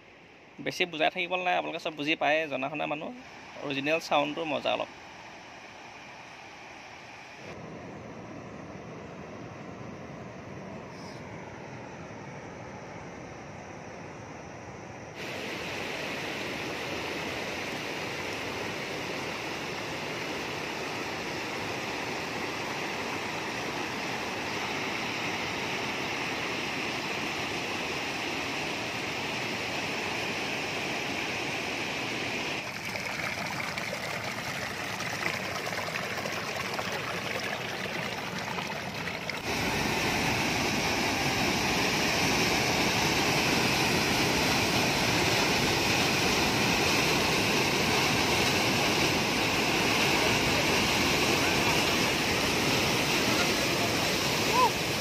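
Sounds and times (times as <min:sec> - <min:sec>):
river rapids and waterfall rushing: 0:15.2 - 0:55.0.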